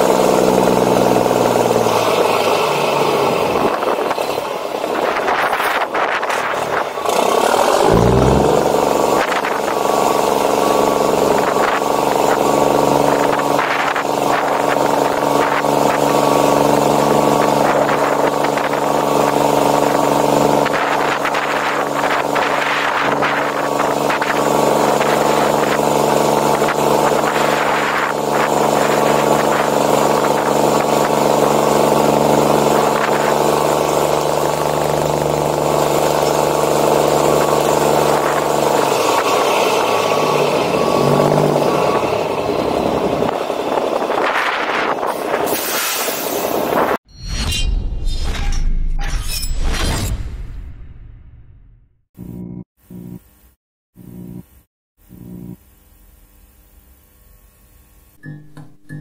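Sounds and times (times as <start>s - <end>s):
diesel truck engine running: 7.0s - 11.4s.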